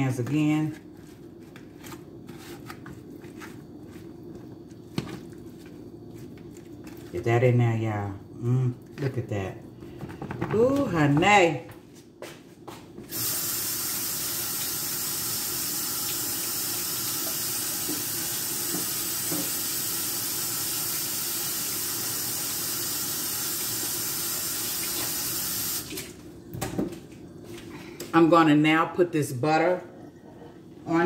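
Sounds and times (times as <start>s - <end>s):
faucet running water: 13.1s - 26.3s.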